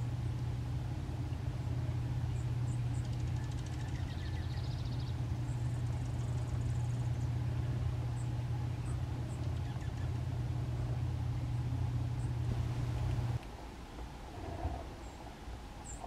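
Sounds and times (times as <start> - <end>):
steady low hum: 0.0 - 16.0
bird buzzy trill: 1.1 - 13.4.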